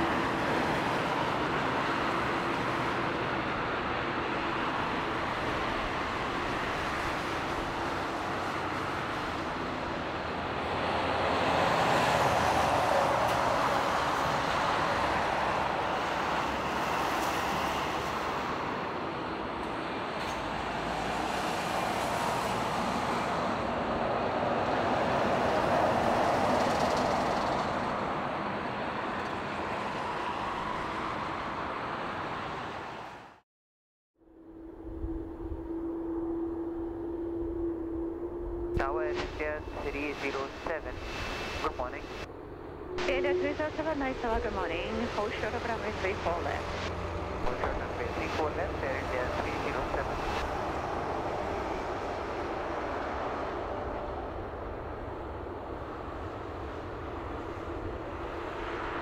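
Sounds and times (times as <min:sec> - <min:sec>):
jet engines rushing: 0:35.4 - 0:59.0.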